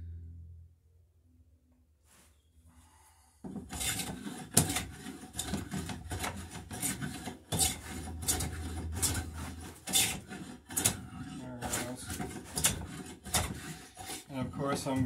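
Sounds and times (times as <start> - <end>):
bench plane cutting wood: 3.4 - 15.0.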